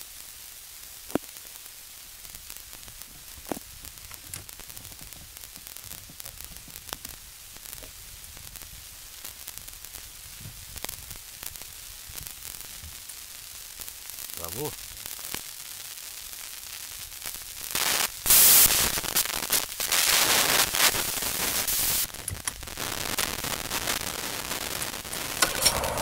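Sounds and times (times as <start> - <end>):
sharp clicks: 25.1 - 26.0.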